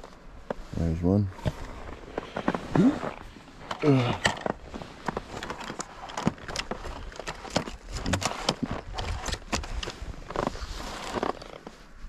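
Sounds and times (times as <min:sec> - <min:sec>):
snow crunching: 0:00.1 - 0:12.0
ski boot clicking into binding: 0:03.6 - 0:11.7.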